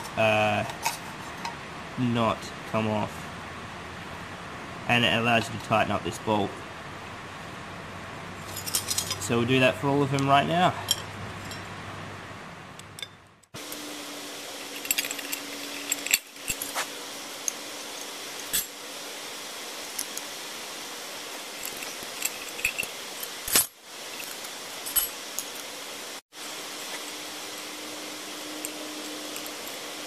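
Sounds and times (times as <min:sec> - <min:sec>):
small steel parts clinking: 0:08.4 - 0:09.3, 0:14.6 - 0:18.7, 0:21.6 - 0:25.7
rain hiss: 0:13.5 - 0:30.0.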